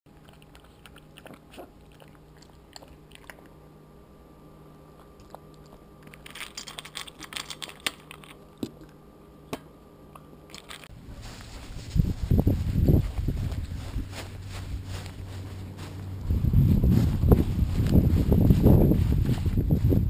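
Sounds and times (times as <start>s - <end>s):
puppy crunching dry kibble: 0.1s - 3.5s, 5.0s - 8.9s, 10.5s - 10.9s.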